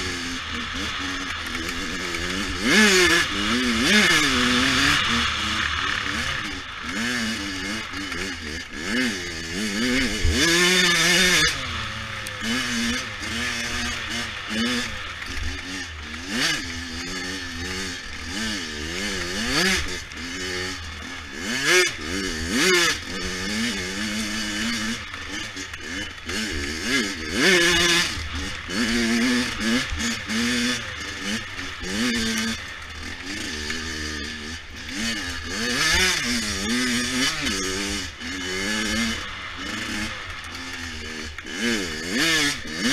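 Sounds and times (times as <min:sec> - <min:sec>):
dirt bike engine revving: 0:00.0 - 0:42.9.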